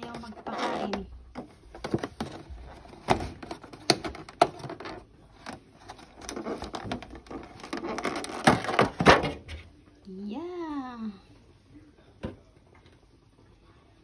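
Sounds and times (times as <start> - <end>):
plastic container clicking and crinkling: 0.0 - 9.4
plastic container cracking: 0.0 - 9.7.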